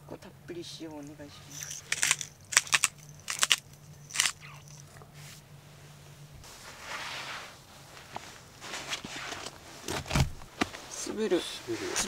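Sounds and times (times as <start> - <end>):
soft rustling: 0.9 - 12.0
salt shaker rattling: 1.5 - 4.8.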